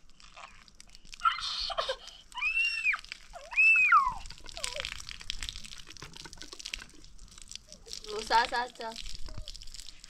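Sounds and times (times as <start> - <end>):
water splashing from hose: 0.0 - 10.0
child crying out: 1.2 - 4.9.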